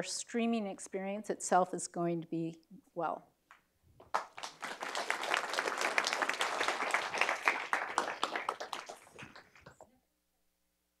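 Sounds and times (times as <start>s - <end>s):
audience applauding: 4.0s - 9.8s.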